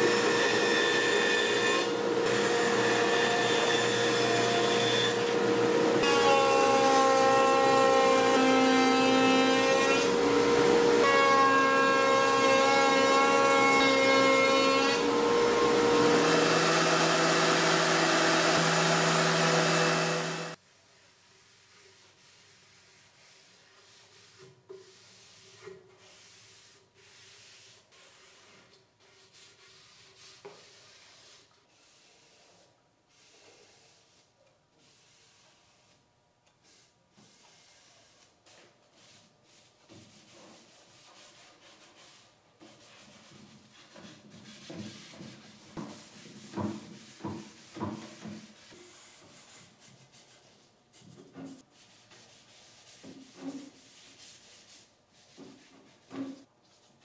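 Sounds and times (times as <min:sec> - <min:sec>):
router table whine: 0:15.0 - 0:20.6.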